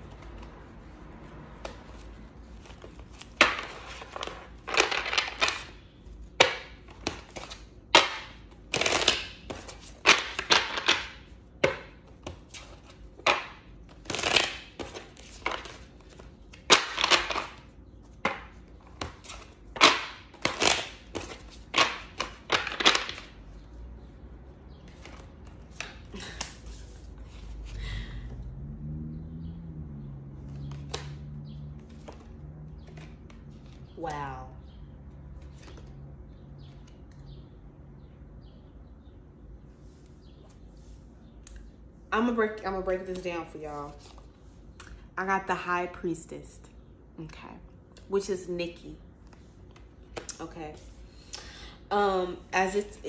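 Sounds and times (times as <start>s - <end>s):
cards being shuffled: 1.6s - 5.8s, 6.8s - 23.4s, 24.9s - 27.7s, 30.5s - 33.9s, 35.4s - 36.0s.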